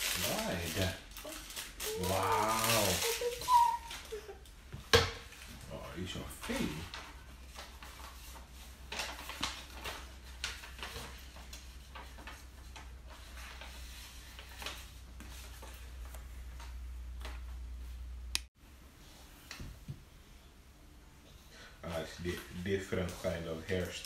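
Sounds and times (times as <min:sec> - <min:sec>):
paper rustling: 0:00.0 - 0:04.4, 0:05.2 - 0:17.4.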